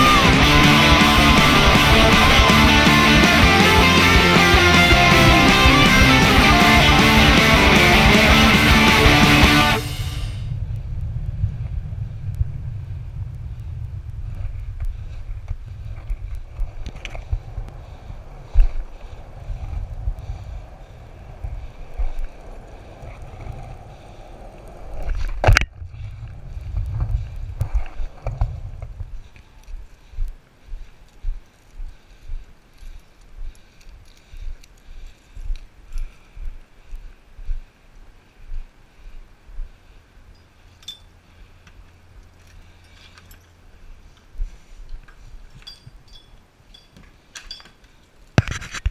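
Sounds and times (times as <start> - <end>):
skateboard wheels rolling on pavement: 0.0 - 30.0.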